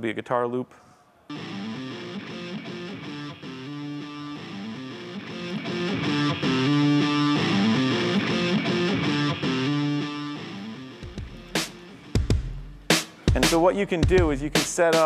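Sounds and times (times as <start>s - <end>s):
looped guitar riff over loudspeakers: 1.3s - 12.2s.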